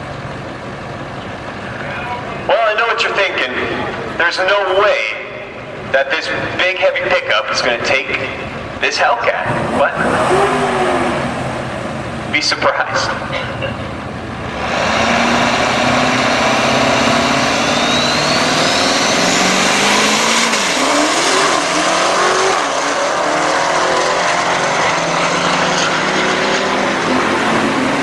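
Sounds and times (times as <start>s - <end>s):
car engines accelerating hard: 0.0s - 28.0s
high whine: 9.8s - 28.0s.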